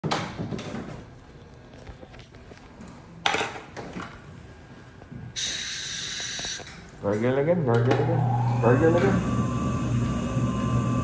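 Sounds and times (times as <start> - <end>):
compressed air hiss: 5.4 - 6.8
dental air equipment hissing and whining: 5.4 - 6.9, 7.9 - 11.0.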